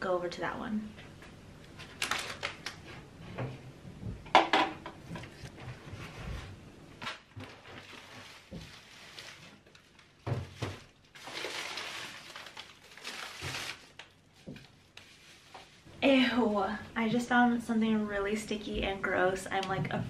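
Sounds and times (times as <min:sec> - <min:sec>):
plastic containers knocking and clattering: 0:03.4 - 0:05.7, 0:10.2 - 0:11.4
rustling: 0:05.1 - 0:15.9.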